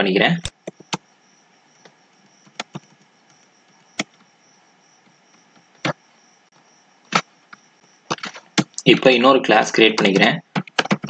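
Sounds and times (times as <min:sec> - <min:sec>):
faint steady hiss: 0:00.0 - 0:11.0
keyboard and mouse clicks: 0:00.4 - 0:01.0, 0:01.8 - 0:04.3, 0:10.0 - 0:11.0.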